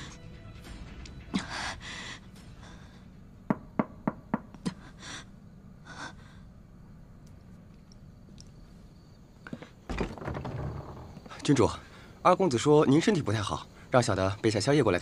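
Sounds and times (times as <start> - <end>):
knocks on a wooden door: 3.5 - 4.5.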